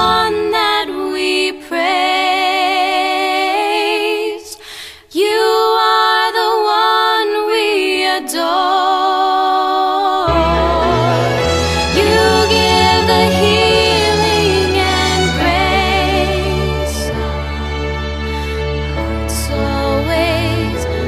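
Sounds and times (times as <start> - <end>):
low instrumental notes: 0.0 - 0.9, 10.3 - 19.2
person singing with vibrato: 0.0 - 17.9.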